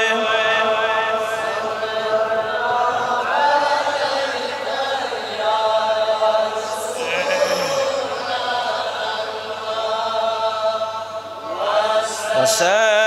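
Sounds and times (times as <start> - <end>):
man chanting: 0.0 - 5.1, 6.6 - 9.2, 11.9 - 13.0.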